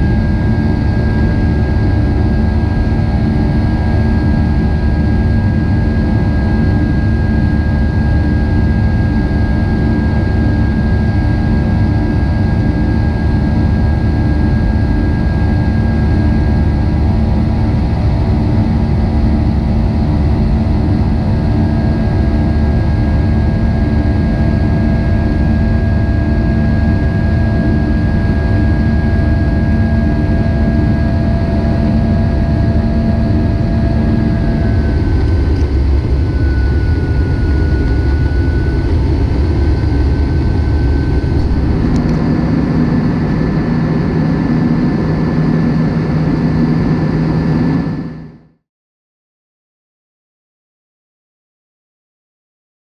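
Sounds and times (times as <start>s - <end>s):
jet engine roar in cabin: 0.0s - 48.6s
thin high whine: 21.6s - 48.4s.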